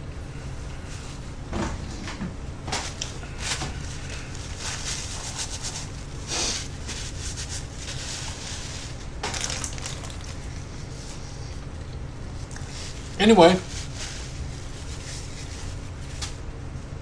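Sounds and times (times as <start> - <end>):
low room hum: 0.0 - 17.0
paper wrapper crinkling: 2.8 - 16.4.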